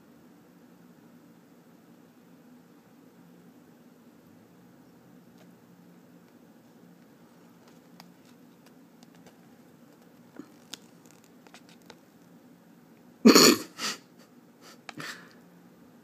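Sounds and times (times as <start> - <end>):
paper sheet being handled: 7.3 - 12.1
person coughing: 13.2 - 14.1.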